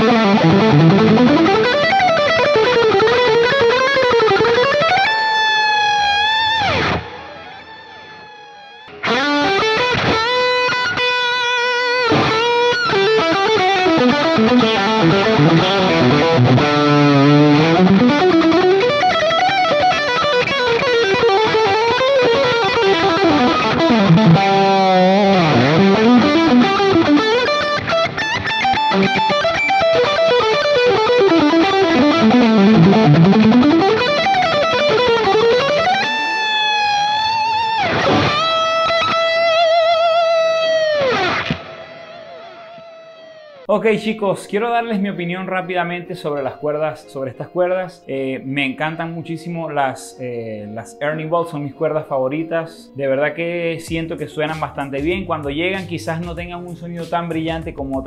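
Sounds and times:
electric guitar solo: 0.0 - 43.7.

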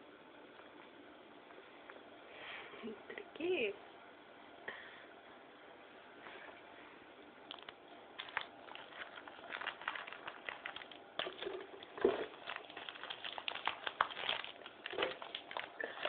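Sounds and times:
paper sachets rustling and crinkling: 7.5 - 16.0.

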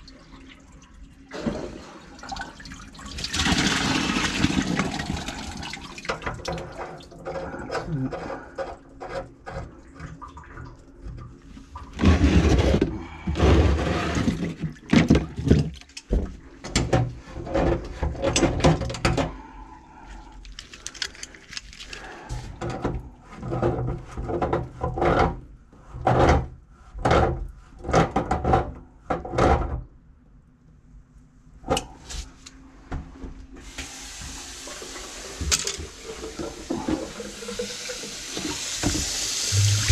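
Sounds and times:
water splashing into a bucket: 1.3 - 7.0, 33.8 - 39.9.

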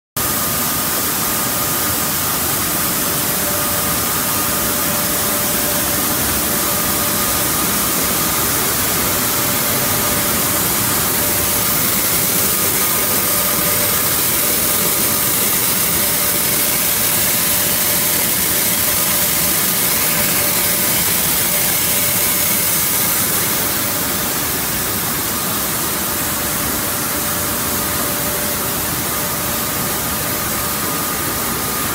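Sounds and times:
machinery hissing: 1.4 - 25.8.

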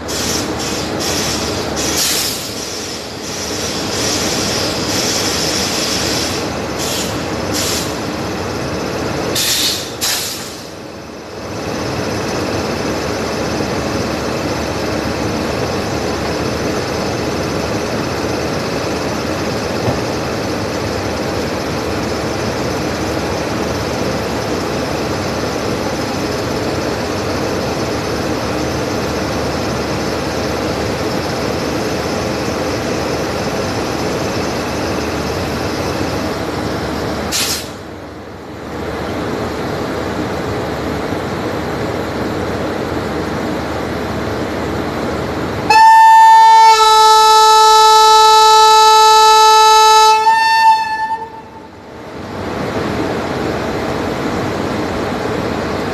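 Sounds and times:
electric locomotive running noise: 0.0 - 55.9
locomotive horn: 45.7 - 51.7.

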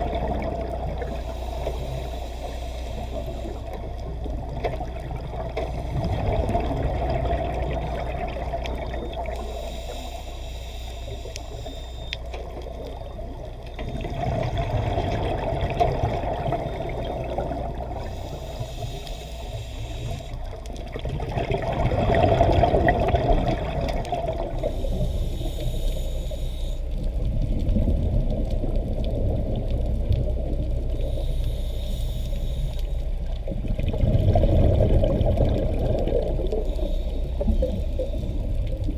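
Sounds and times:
bubbling exhaust bubbles: 0.0 - 1.0, 4.3 - 9.2, 13.9 - 18.1, 20.9 - 24.6, 33.5 - 36.6
hissing regulator inhale: 1.0 - 4.3, 9.2 - 12.9, 17.7 - 20.6, 24.5 - 27.2, 30.9 - 33.3, 36.3 - 38.8.

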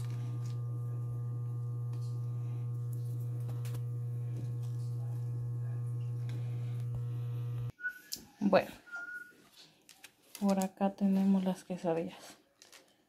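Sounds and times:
low electrical hum: 0.0 - 7.7.

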